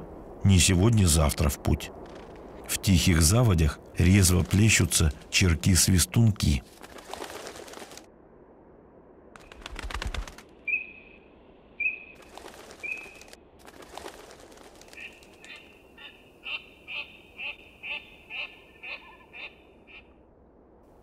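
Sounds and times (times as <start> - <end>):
short high whistled calls: 10.6 - 11.2, 11.8 - 12.2, 12.8 - 13.3.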